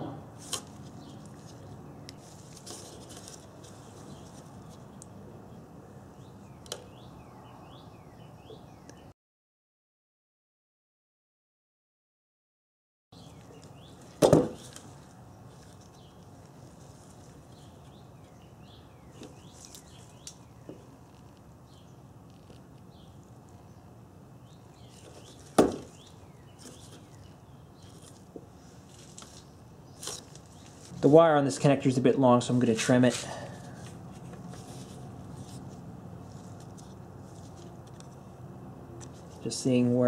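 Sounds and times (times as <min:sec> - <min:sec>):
birds chirping: 0:00.8 - 0:09.1, 0:13.2 - 0:40.0.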